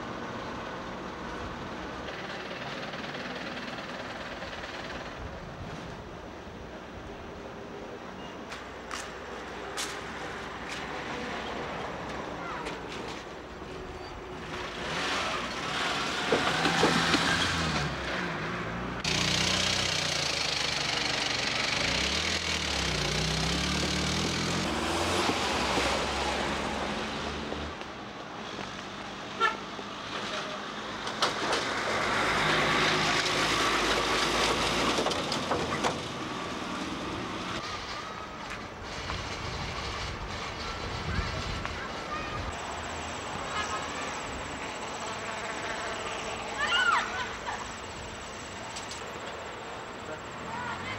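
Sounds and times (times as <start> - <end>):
vehicle horn toots: 29.4 - 29.6.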